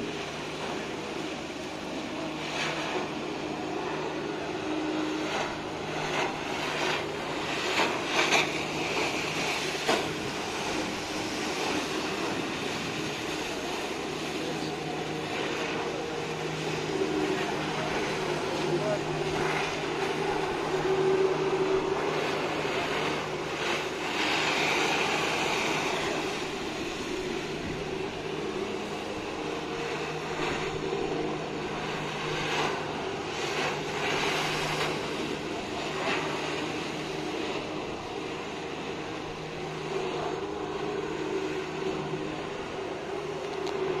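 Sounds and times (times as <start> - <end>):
jet ski engine drone: 0.0 - 44.0
water jets hissing and spraying: 0.0 - 44.0.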